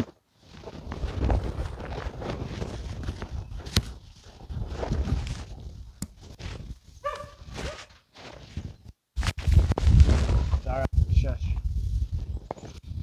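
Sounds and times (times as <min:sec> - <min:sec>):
dog yelping: 0:07.0 - 0:07.9.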